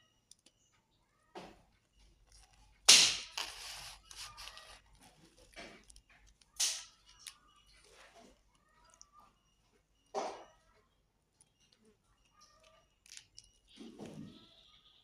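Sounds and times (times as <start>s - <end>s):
knife crunching through fried crust: 3.0s - 4.8s.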